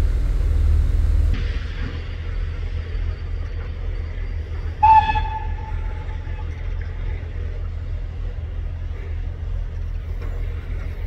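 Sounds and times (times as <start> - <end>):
railway engines rumbling: 0.0 - 11.0
train whistle toot: 4.7 - 6.6.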